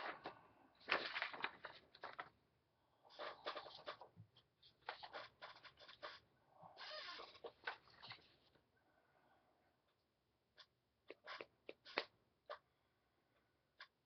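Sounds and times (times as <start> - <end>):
paper rustling and sliding: 0.0 - 2.3.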